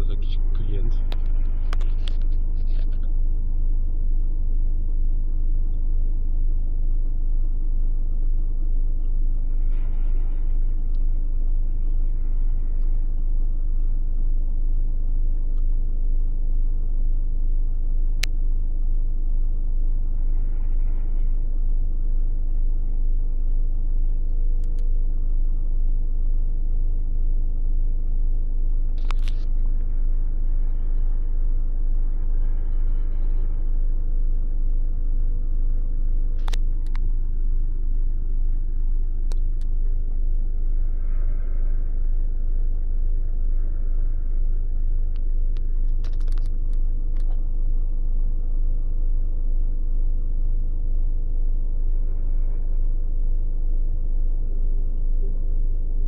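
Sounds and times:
car engine idling: 0.0 - 56.0
sharp clicks: 45.1 - 47.4.

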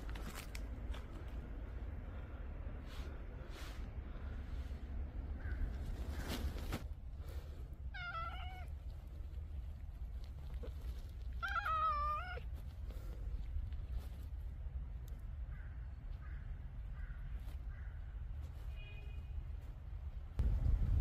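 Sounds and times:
cat meowing: 7.9 - 8.7, 11.4 - 12.5.

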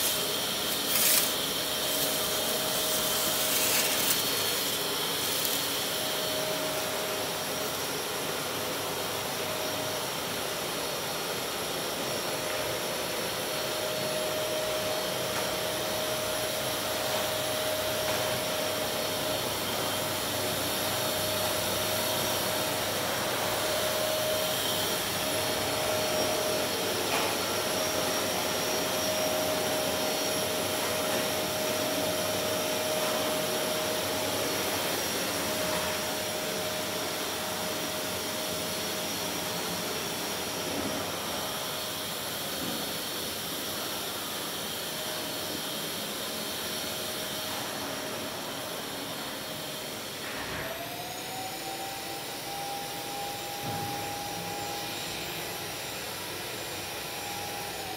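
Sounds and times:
electric fan whirring: 0.0 - 57.9
faint high whine: 15.8 - 57.9.

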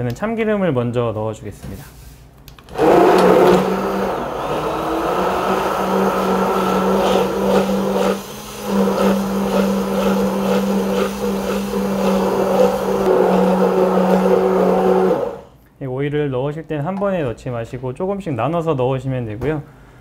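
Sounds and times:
immersion blender running in pot: 2.7 - 15.5.

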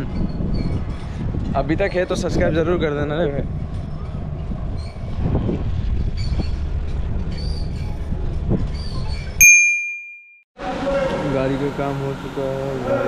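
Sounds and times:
bright bell-like ding: 9.4 - 10.4.

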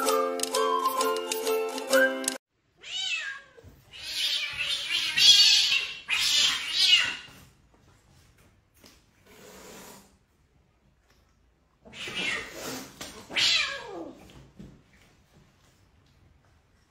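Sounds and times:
cat crying harshly: 2.8 - 7.3, 11.9 - 14.2
cat meowing: 2.8 - 7.3, 11.9 - 14.2.

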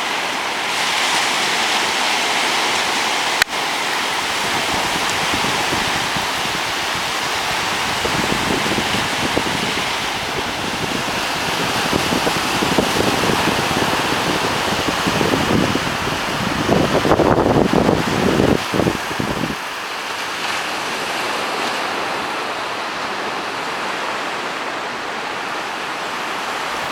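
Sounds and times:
surf washing up beach: 0.0 - 26.9
wind buffeting microphone: 3.5 - 19.7.

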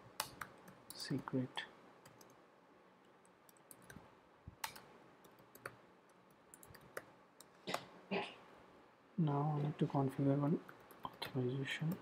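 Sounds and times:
faint keyboard clicks: 3.0 - 7.9.

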